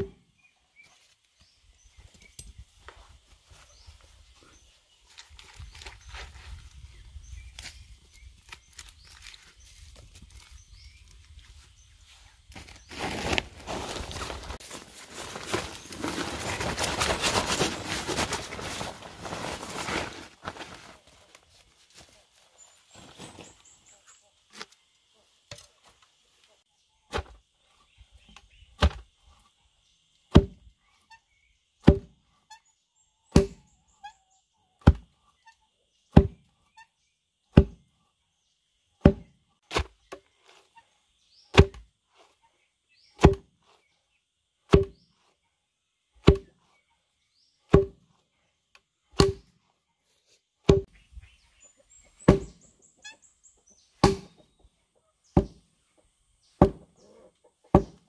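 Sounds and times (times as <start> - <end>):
heavy wooden pestle thuds: 30.3 - 30.6, 31.8 - 32.1, 33.4 - 33.6, 37.6 - 37.8, 39.0 - 39.9, 44.7 - 45.0, 47.7 - 48.0, 49.2 - 49.4, 50.7 - 50.9, 52.3 - 52.6, 54.0 - 54.4, 56.6 - 56.9, 57.8 - 58.0.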